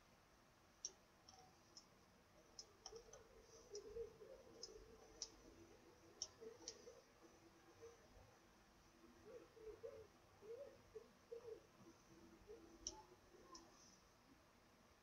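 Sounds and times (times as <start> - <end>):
computer mouse clicks: 0.8 - 7.0, 12.5 - 13.9.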